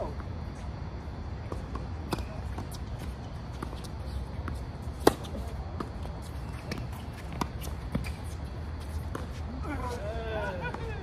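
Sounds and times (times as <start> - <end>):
tennis ball hit by rackets: 4.9 - 6.0.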